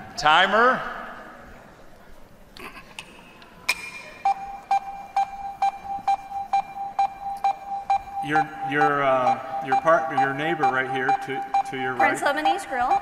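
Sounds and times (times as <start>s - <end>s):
electronic beeping: 3.7s - 13.0s.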